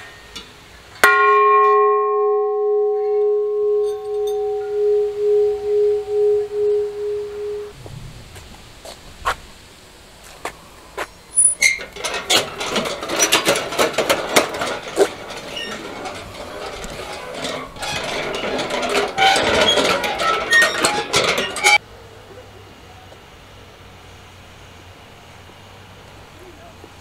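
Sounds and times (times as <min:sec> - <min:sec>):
metal prayer wheels rattling: 0:01.0 - 0:07.7, 0:11.4 - 0:21.8.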